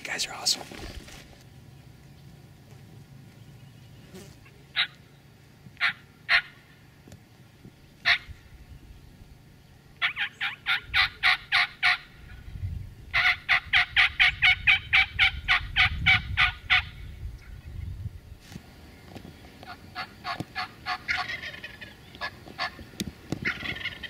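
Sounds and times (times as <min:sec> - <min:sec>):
turkey clucks: 0:05.8 - 0:06.6, 0:08.0 - 0:08.3, 0:10.0 - 0:12.1, 0:13.1 - 0:17.0, 0:19.6 - 0:24.0
turkey rapid yelps: 0:05.8 - 0:06.6, 0:08.1 - 0:08.3, 0:10.0 - 0:12.1, 0:13.1 - 0:17.0, 0:19.7 - 0:22.8, 0:23.4 - 0:24.0.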